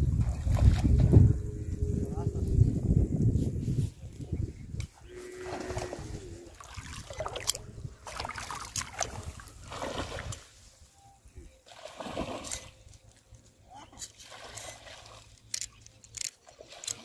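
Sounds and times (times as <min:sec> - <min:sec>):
lure splashing on water: 0:05.3 - 0:10.5, 0:11.6 - 0:13.2, 0:13.8 - 0:17.0.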